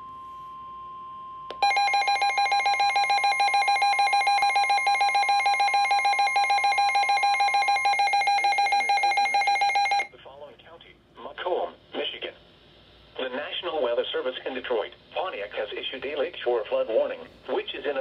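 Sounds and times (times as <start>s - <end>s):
rapid pulsing alarm beeps: 1.6s - 10.1s.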